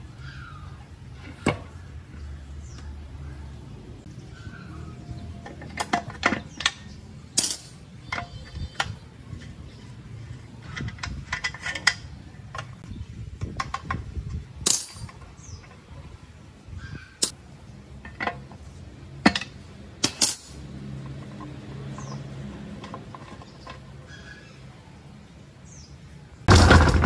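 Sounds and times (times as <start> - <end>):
metal parts clinking on tank: 5.4 - 9.6, 10.6 - 12.8, 13.4 - 15.3, 19.2 - 24.2.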